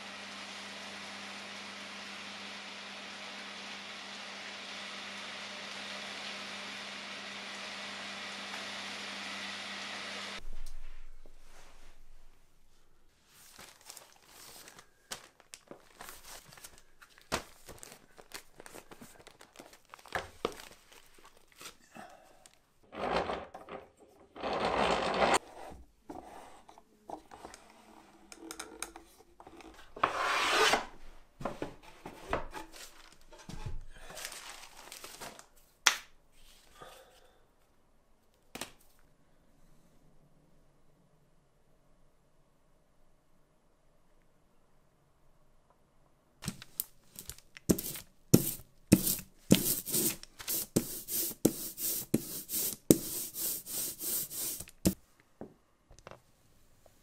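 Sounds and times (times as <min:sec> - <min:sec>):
wood rubbing and scraping: 0:22.9 - 0:30.8.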